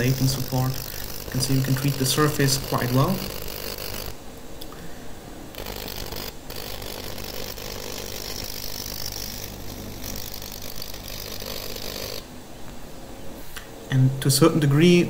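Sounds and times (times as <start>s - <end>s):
plasma jet sputtering hiss: 0.0s - 4.2s.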